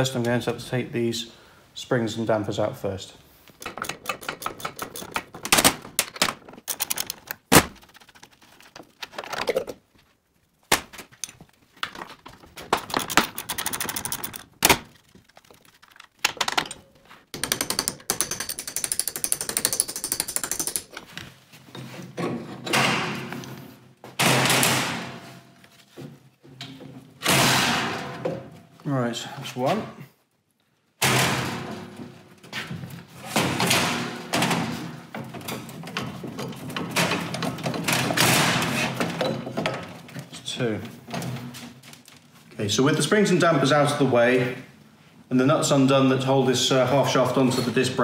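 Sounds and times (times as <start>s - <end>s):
socket ratchet clicking: 12.8s - 14.5s, 17.4s - 21.0s.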